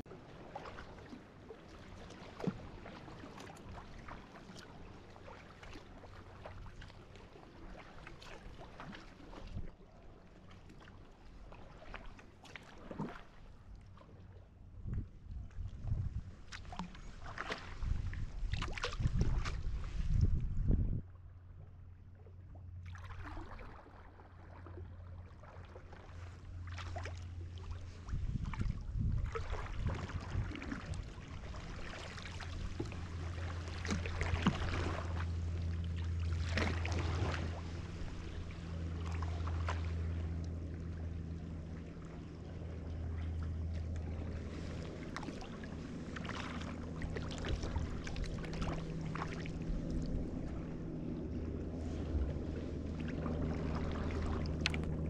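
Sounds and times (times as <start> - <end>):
kayak paddle splashing water: 0.0 - 20.5, 22.4 - 55.0
steady low hum: 0.1 - 55.0.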